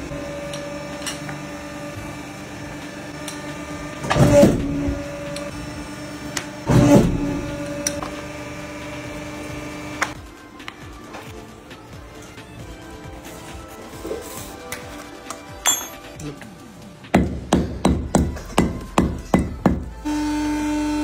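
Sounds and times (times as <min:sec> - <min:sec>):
hydraulic press humming: 0:00.0 - 0:10.2.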